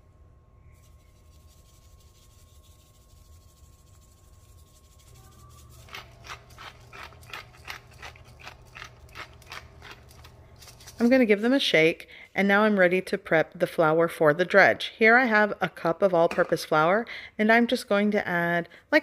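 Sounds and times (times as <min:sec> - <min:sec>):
pepper grinder clicking: 0:05.9 - 0:10.4.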